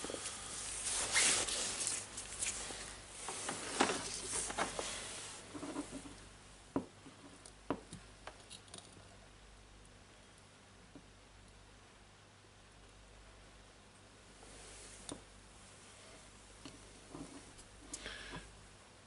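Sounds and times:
gloved hands rustling: 0.0 - 6.1.

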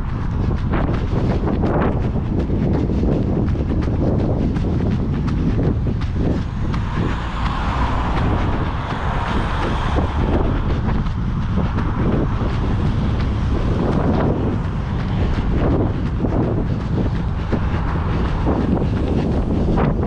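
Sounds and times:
running footfalls: 0.0 - 20.0
rushing noise: 0.0 - 20.0
wind buffeting microphone: 0.0 - 20.0.

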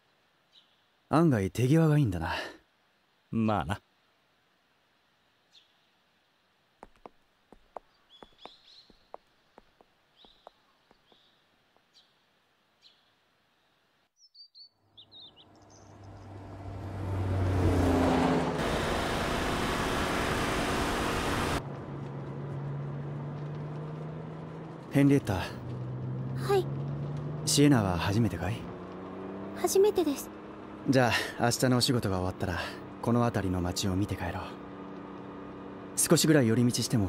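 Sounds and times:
birds chirping: 6.8 - 16.8
car driving by: 15.5 - 36.2.

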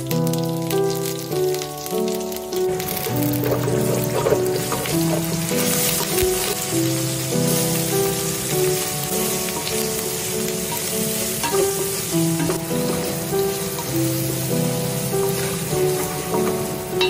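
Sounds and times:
background music: 0.0 - 17.0
hot oil sizzling in a pan: 0.0 - 17.0
wooden spatula stirring: 2.8 - 7.9.

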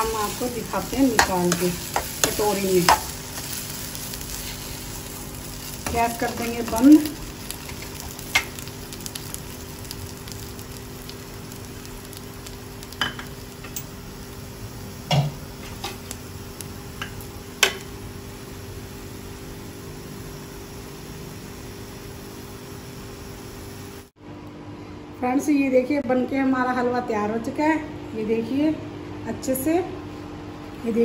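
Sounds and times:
food sizzling in a pan: 0.0 - 24.1
low steady hum: 0.0 - 31.0.

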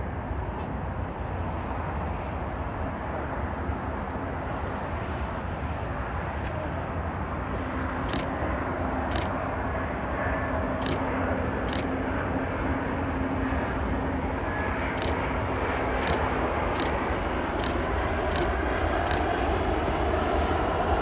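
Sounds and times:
distant airplane engine hum: 0.0 - 21.0
road traffic rumble: 0.4 - 21.0
sharp high ticks: 8.1 - 8.3, 9.1 - 9.3, 11.7 - 11.9, 16.0 - 16.2, 16.8 - 17.0, 17.6 - 18.5, 19.1 - 19.3.

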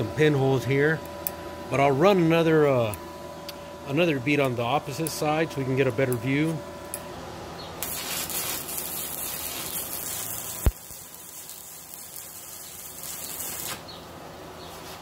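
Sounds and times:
welding arc hissing: 7.8 - 14.0.

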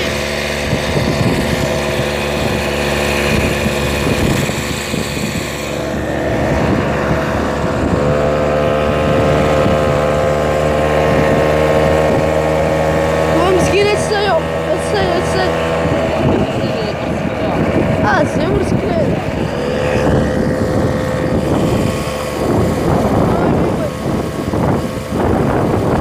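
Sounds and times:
vehicle engine running: 0.0 - 26.0
wind noise on microphone: 0.0 - 26.0.

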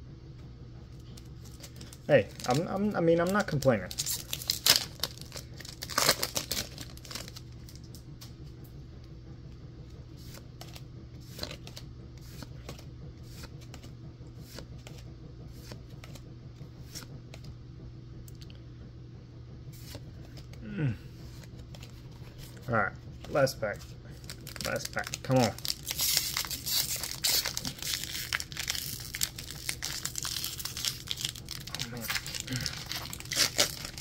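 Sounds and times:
low hum: 0.0 - 34.0
foil wrapper tearing: 1.4 - 7.5, 24.2 - 34.0.

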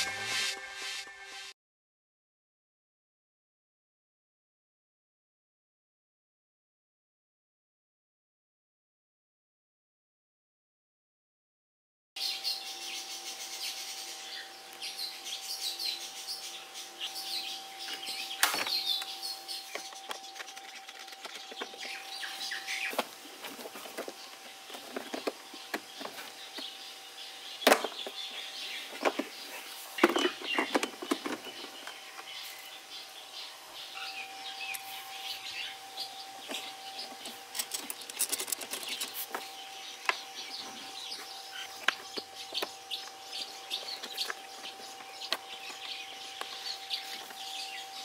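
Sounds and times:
faint steady hum: 12.2 - 48.0
small birds chirping: 12.2 - 48.0.

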